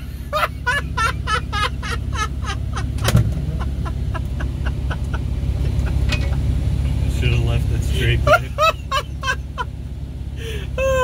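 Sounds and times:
man laughing hard: 0.0s - 6.5s, 8.0s - 9.7s, 10.4s - 11.0s
car engine droning: 0.0s - 11.0s.

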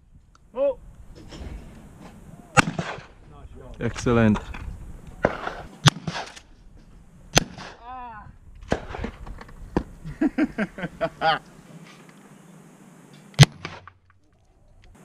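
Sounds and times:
shotgun shots: 2.6s - 3.2s, 5.2s - 6.5s, 7.3s - 7.8s, 8.6s - 9.2s, 13.4s - 14.0s
men talking: 3.2s - 5.3s.

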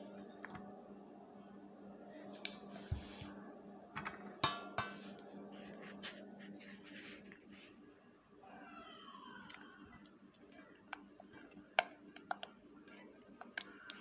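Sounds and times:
faint steady hum: 0.0s - 14.0s
dishes and utensils clinking: 4.0s - 5.1s.

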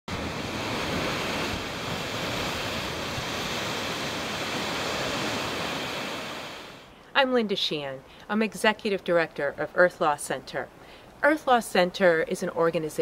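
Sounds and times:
flowing water rushing: 0.1s - 6.9s.

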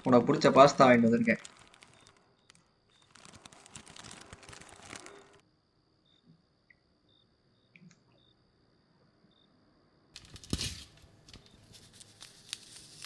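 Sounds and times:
bag rustling and crinkling: 0.5s - 5.4s.

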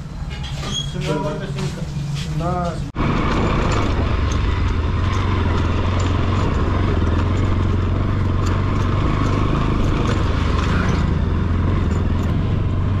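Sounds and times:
motorcycle engine running: 3.0s - 13.0s.

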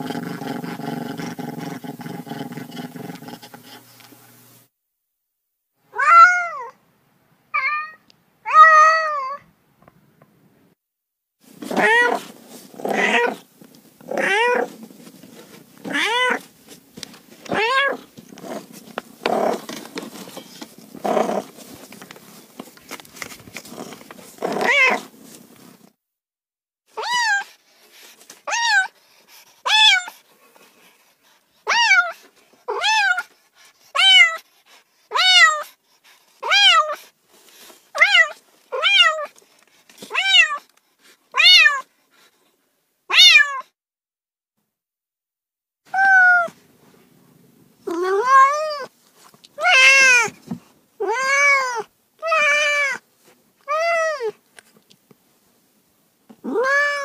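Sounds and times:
cat meowing: 5.9s - 6.8s, 7.6s - 9.4s, 17.5s - 18.0s, 24.6s - 25.0s, 40.1s - 40.6s, 41.4s - 41.9s, 43.1s - 43.7s, 45.9s - 46.6s, 47.9s - 48.9s, 49.6s - 50.3s, 51.0s - 53.0s, 56.4s - 57.0s.

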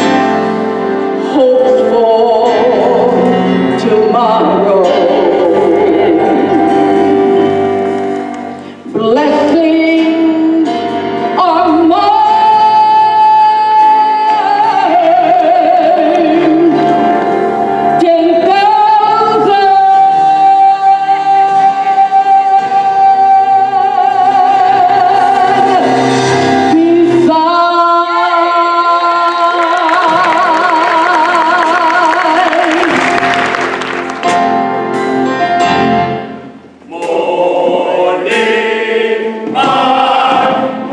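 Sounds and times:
instrumental accompaniment: 0.0s - 28.0s, 29.0s - 40.9s
woman singing with vibrato: 1.2s - 7.7s, 8.8s - 17.2s, 17.9s - 33.6s.

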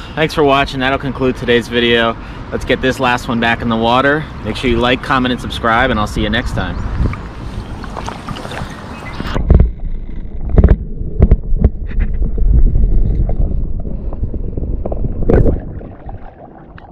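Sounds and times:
water splashing: 7.1s - 16.9s
muffled underwater rumble: 7.6s - 16.9s.

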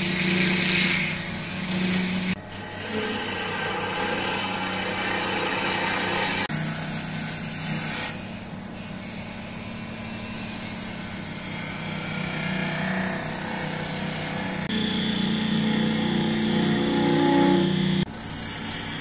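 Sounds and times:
blade scraping spinning wood: 0.0s - 19.0s
wood lathe motor hum: 0.0s - 19.0s
high steady whine: 11.6s - 18.1s.

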